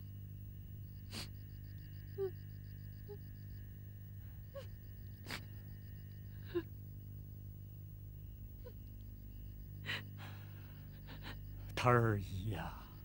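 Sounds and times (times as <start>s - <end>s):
low steady hum: 0.0s - 13.0s
person sniffing: 1.1s - 1.3s
person sobbing quietly: 6.3s - 6.7s, 9.8s - 11.8s.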